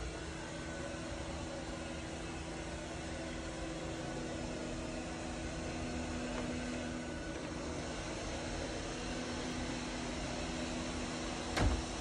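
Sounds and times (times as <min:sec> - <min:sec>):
robot vacuum whirring hum: 0:00.0 - 0:12.0.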